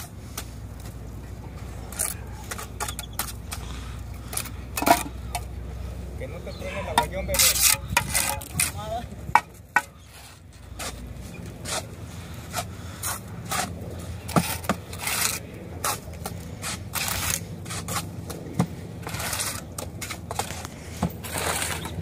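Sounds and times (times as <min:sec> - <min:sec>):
trowel scraping mortar: 0:06.7 - 0:09.0, 0:09.8 - 0:18.1, 0:19.0 - 0:22.0.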